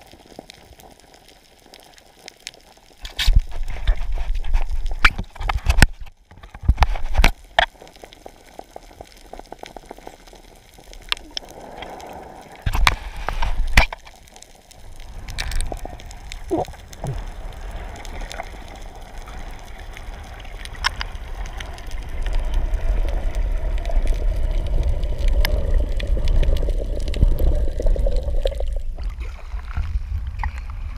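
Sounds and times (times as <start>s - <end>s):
underwater rumble: 0.0s - 30.9s
underwater clicks and knocks: 3.0s - 7.8s, 12.7s - 14.2s.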